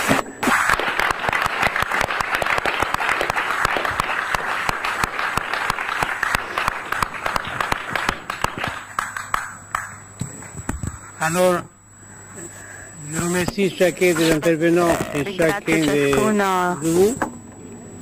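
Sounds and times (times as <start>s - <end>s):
audience applauding: 0.7s - 9.9s.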